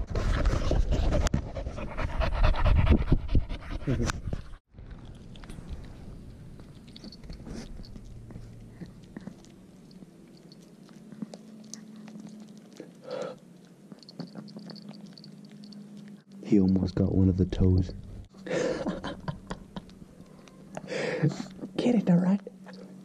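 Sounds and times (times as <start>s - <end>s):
dog gnawing on bone: 4.7s - 17.0s.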